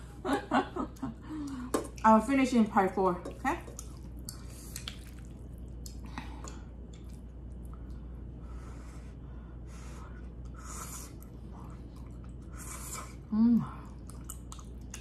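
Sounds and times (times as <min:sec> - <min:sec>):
low steady hum: 0:00.0 - 0:15.0
slurping and chewing noodles: 0:03.8 - 0:08.0, 0:10.2 - 0:15.0.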